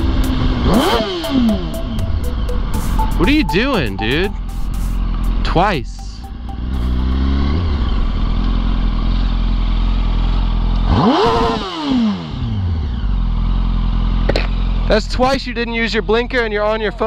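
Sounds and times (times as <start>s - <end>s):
motorcycle engine revving: 7.5s - 14.3s.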